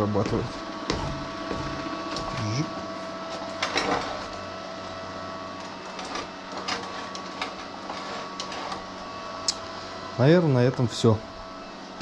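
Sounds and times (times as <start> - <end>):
high-pitched electrical hum: 0.0 - 12.0.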